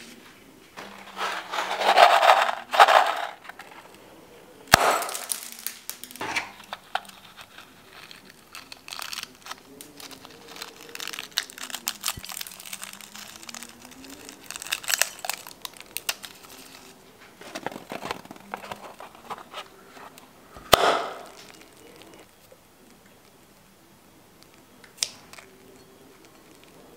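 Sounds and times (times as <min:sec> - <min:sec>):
balloon popping: 0:04.7 - 0:07.1, 0:20.7 - 0:21.5.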